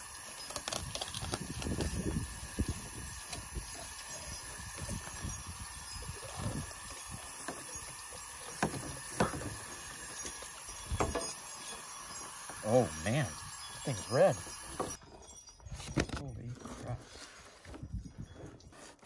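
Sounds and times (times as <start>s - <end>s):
water spraying from hose nozzle: 0.0s - 15.0s.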